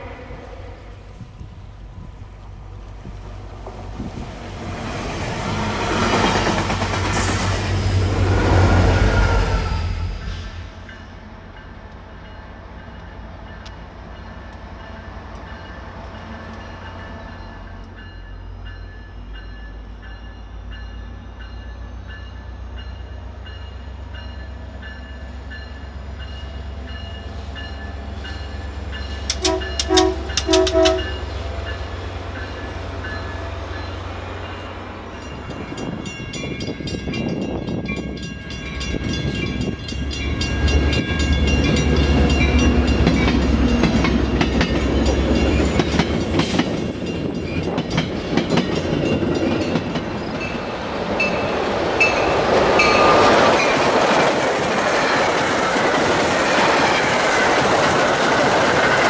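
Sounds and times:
train horn: 0:00.0 - 0:01.2, 0:29.3 - 0:31.3
diesel train engine drone: 0:00.0 - 0:59.0
train wheels clattering on rails: 0:03.0 - 0:08.8, 0:12.8 - 0:59.0.

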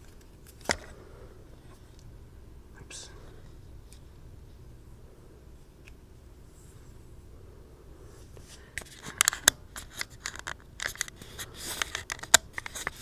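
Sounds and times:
small objects handled with clicks: 0:08.8 - 0:13.0.

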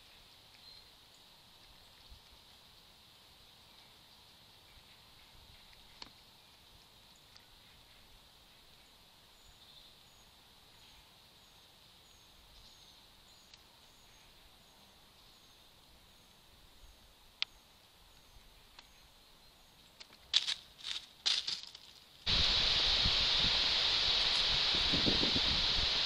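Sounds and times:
squirrel rustling dry leaves: 0:00.0 - 0:08.8, 0:17.8 - 0:26.0
faint outdoor hiss: 0:00.0 - 0:26.0.

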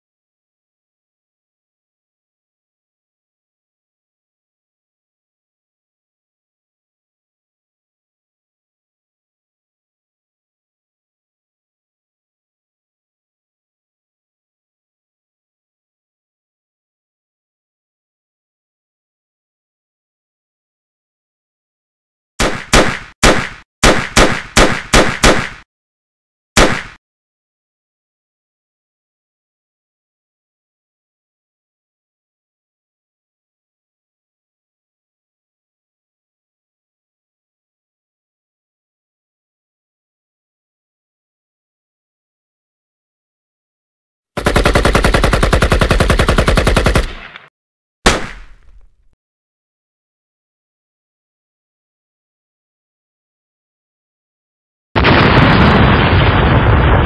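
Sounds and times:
pistol gunshots with echo: 0:22.4 - 0:25.6, 0:26.6 - 0:27.0, 0:48.1 - 0:49.0.

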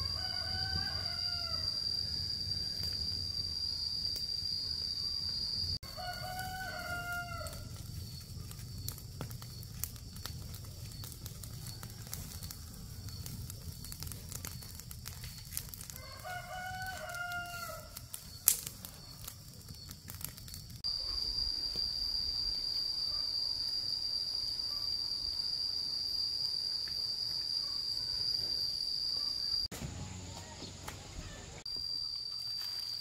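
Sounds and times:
rooster crowing: 0:00.0 - 0:04.2, 0:05.8 - 0:07.8, 0:11.4 - 0:13.2, 0:15.8 - 0:18.2.

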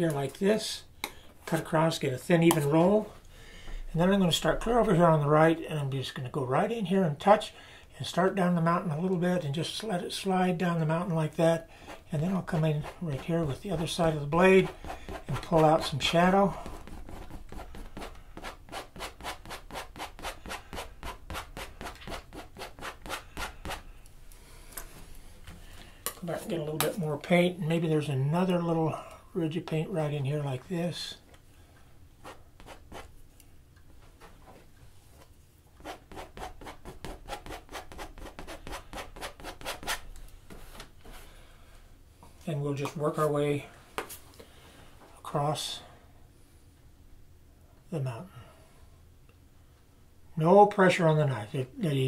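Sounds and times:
palette knife rubbing on canvas: 0:11.8 - 0:23.8, 0:32.2 - 0:33.1, 0:35.8 - 0:40.0.

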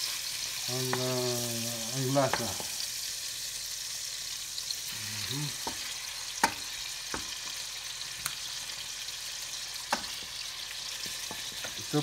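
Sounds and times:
fish sizzling in a skillet: 0:00.0 - 0:12.0.

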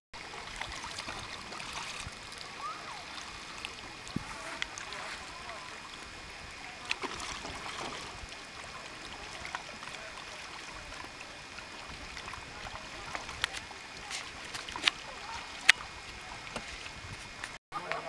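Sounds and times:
paddle splashes and drips: 0:00.2 - 0:17.6
small waves lapping at hull: 0:00.2 - 0:18.0.

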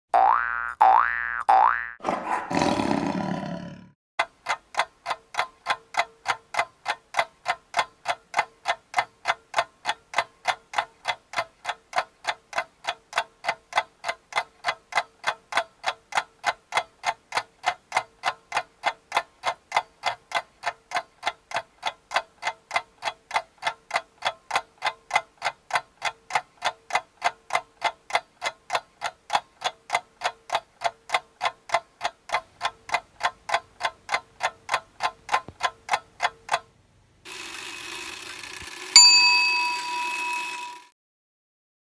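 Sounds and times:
clock ticking: 0:04.2 - 0:36.7.

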